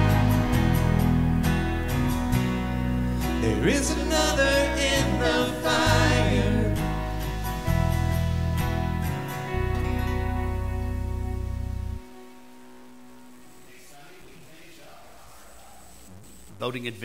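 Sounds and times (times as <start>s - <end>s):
held bass notes: 0.0s - 12.8s
guitar: 0.0s - 16.6s
person singing: 3.3s - 7.4s.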